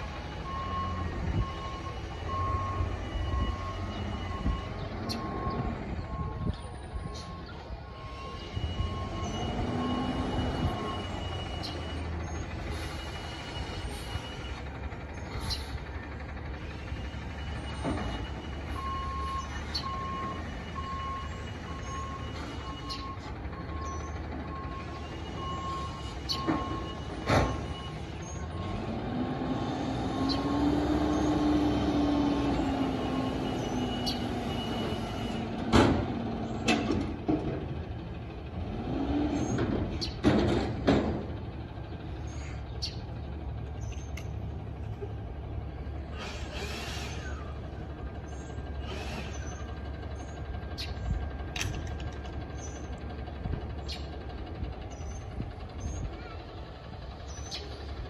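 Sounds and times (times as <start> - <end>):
garbage truck engine revving: 0.0 - 58.0
hydraulic whine: 45.9 - 50.3.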